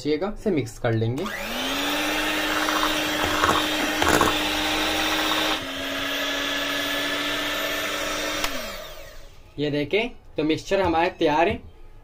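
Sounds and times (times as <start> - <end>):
electric hand mixer whirring: 1.2 - 9.4.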